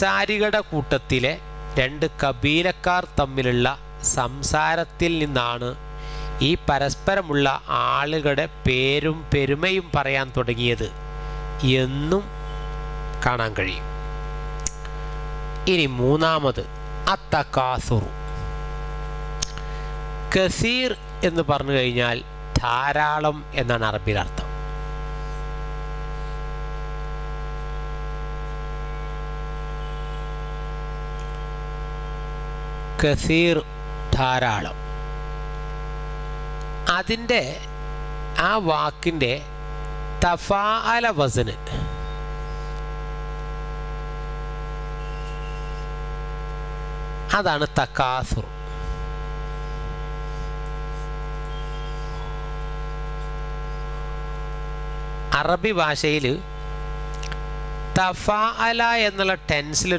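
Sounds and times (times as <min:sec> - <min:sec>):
electrical mains hum: 0:00.0 - 0:59.9.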